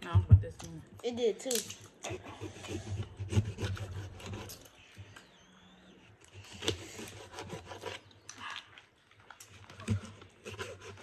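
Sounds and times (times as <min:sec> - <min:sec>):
shells cracking: 0:01.4 - 0:02.0.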